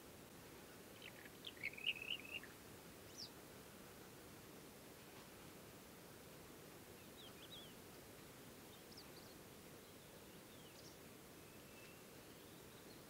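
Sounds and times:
low background noise: 0.0s - 13.0s
songbird singing: 0.6s - 3.4s, 6.9s - 13.0s.

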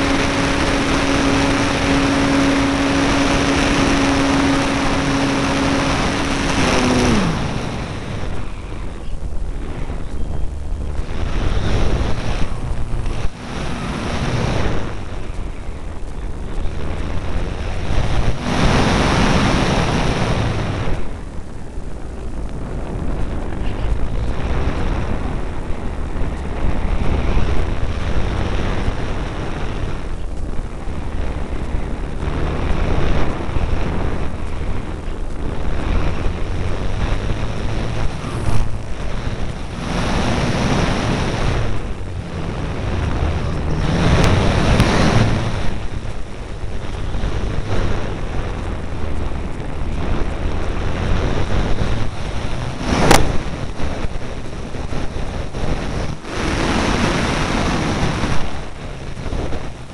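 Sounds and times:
electric motor and propeller hum: 0.0s - 59.9s
wind rushing over microphone: 0.0s - 59.9s.

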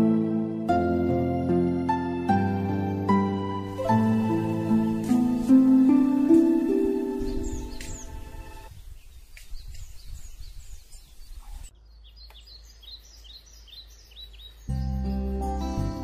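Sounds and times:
background music: 0.0s - 8.7s, 14.7s - 16.0s
ambient hiss: 3.7s - 9.4s
small birds chirping: 3.7s - 16.0s.

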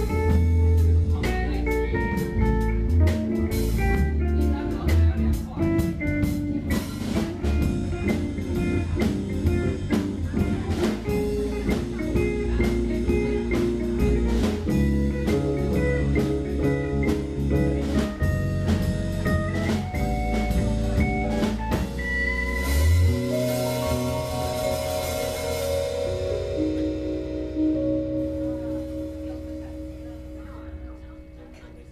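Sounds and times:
drum kit with cymbals: 0.0s - 30.8s
electric bass: 0.0s - 31.9s
electric guitar: 0.0s - 31.9s
jazz-fusion band playing: 0.0s - 31.9s
keyboard: 0.0s - 31.9s.

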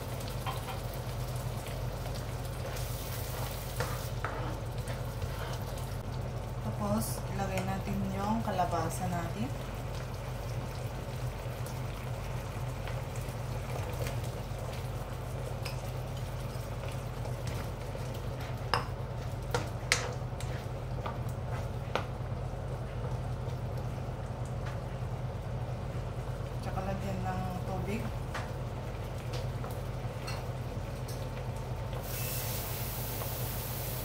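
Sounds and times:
coconut milk simmering and bubbling: 0.0s - 34.0s.

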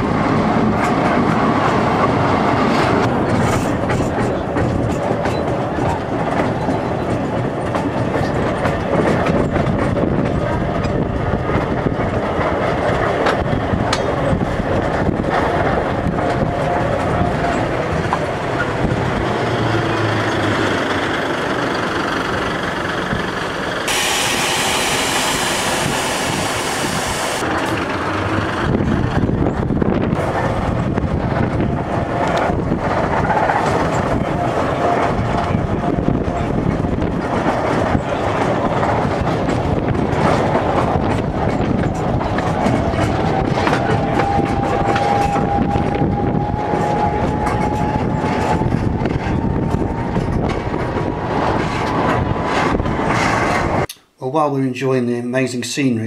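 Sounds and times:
train wheels rumbling on rack rail: 0.0s - 53.9s
loud hiss: 23.9s - 27.4s.

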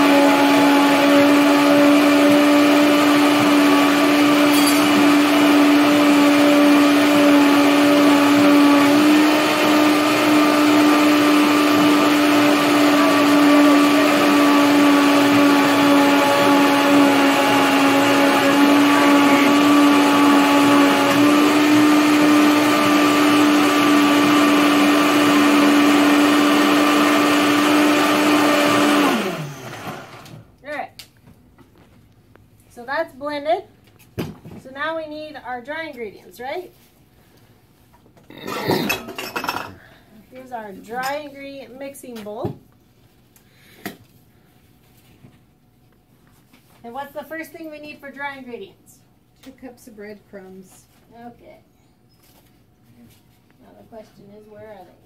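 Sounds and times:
blender motor running: 0.0s - 30.4s
blender motor winding down: 0.0s - 30.4s.

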